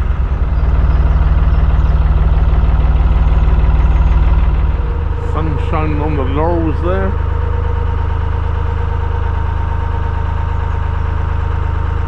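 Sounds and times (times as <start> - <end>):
diesel boat engine running: 0.0 - 12.0.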